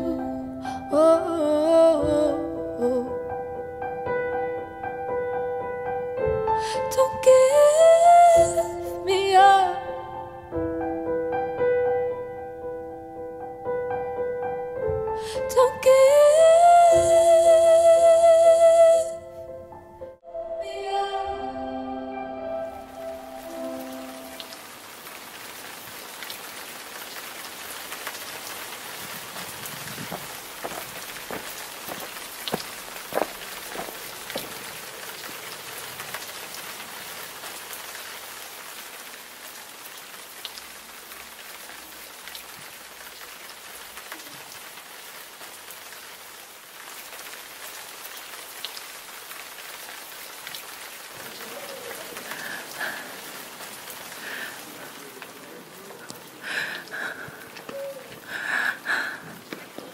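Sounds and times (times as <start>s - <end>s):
steady rain: 0.0s - 19.2s, 20.9s - 59.9s
raindrop taps: 27.6s - 36.7s, 50.4s - 59.9s.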